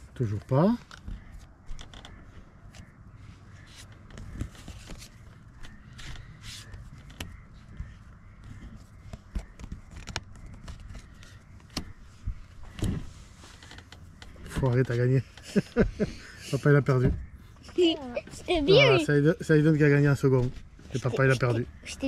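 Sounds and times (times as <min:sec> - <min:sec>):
playing cards clicking and tapping: 0:08.5 - 0:12.0.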